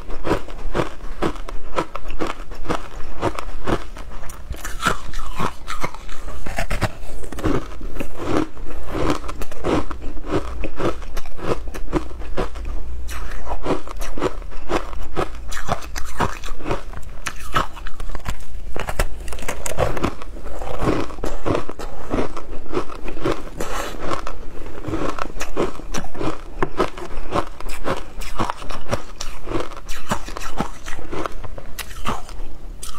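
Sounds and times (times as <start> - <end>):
chewing and crunching ice: 0.0 - 32.9.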